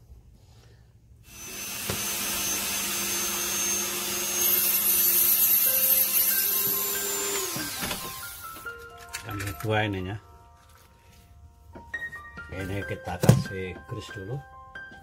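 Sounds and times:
rotary tool high whine: 1.2s - 8.6s.

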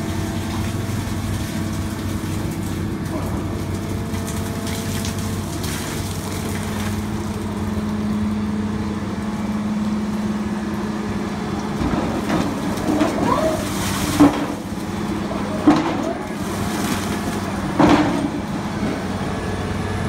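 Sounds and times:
piling rig engine droning: 0.0s - 20.0s
knocks and clatter: 15.6s - 16.2s, 17.0s - 18.5s.

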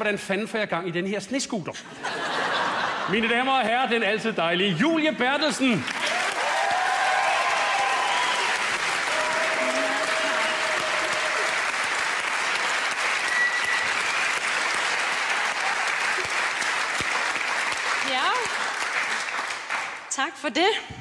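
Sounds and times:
audience applauding: 5.7s - 20.1s.

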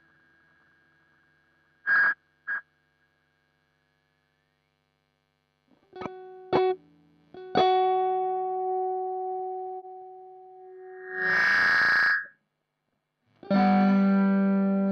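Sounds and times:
high-pitched delay feedback squeals: 1.9s - 2.6s, 10.8s - 12.4s
electric guitar picked notes: 6.0s - 11.9s, 13.4s - 14.9s.

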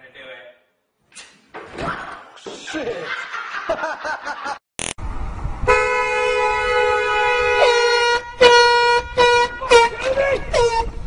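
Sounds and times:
car horn honking: 5.7s - 11.0s.

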